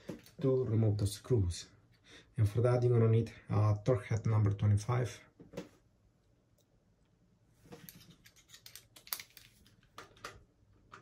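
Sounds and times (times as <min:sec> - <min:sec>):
screwdriver bit metal clicks: 0:08.4 - 0:09.5.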